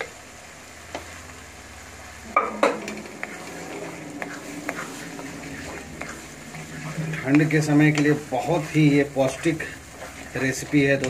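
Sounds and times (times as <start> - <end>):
food frying: 0.0 - 11.0
wooden spatula scraping pan: 2.2 - 11.0.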